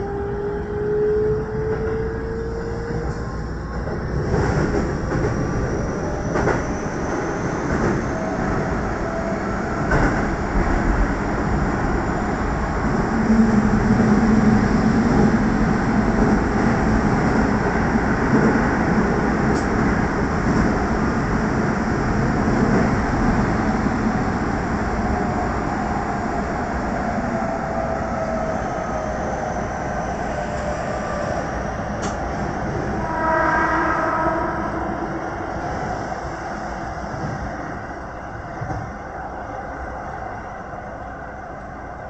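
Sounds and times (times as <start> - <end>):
train wheels rumbling on rail: 0.0 - 39.1.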